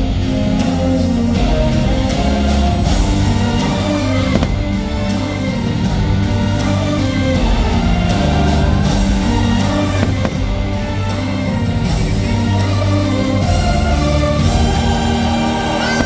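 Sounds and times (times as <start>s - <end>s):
loud soundtrack music: 0.0s - 16.0s
firework bursts cracking: 3.0s - 11.6s.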